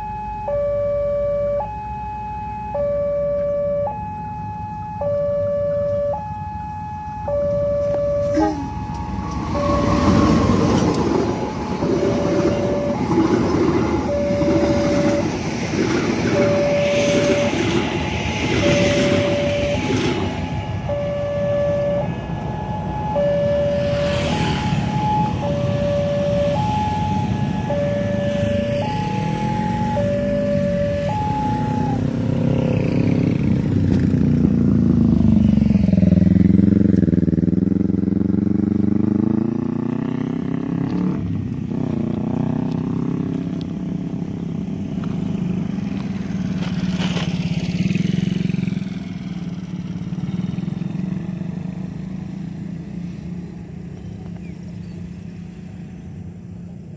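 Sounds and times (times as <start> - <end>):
level crossing two-tone alarm: 0.0 - 15.4, 16.3 - 32.0
train wheels rumbling and clacking: 8.9 - 20.6.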